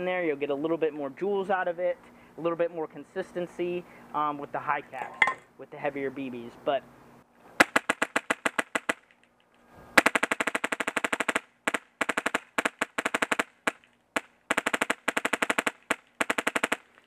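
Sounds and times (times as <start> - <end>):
airsoft rifle shots: 7.6 - 9.0, 10.0 - 17.0.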